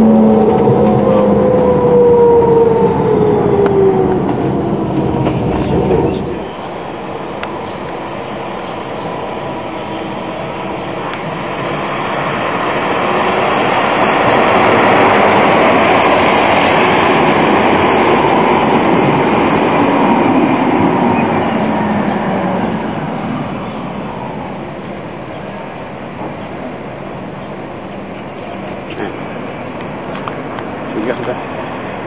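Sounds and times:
car passing: 0.0s - 6.6s
tram running past: 0.0s - 32.0s.

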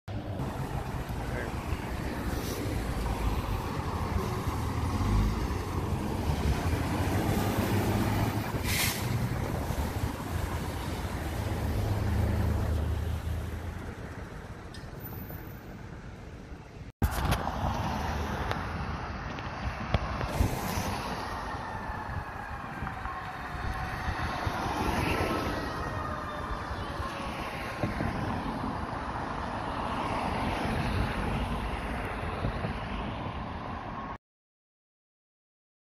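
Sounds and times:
fire engine driving past: 0.3s - 15.7s, 19.7s - 32.7s
distant fire engine siren: 20.2s - 29.4s.

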